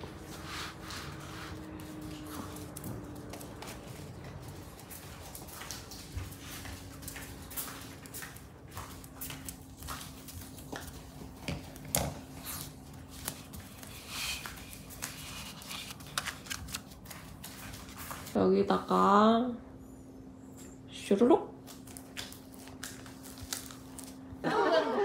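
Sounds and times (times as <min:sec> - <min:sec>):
dog claws clicking on hard floor: 0:01.5 - 0:18.3.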